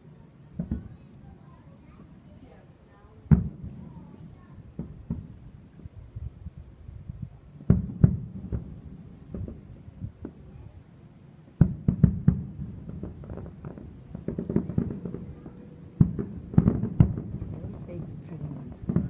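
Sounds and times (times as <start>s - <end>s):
fireworks bursting: 0.0s - 6.5s, 7.2s - 19.0s
small firework pops: 0.6s - 1.3s, 3.3s - 5.4s, 7.6s - 10.7s, 11.6s - 19.0s.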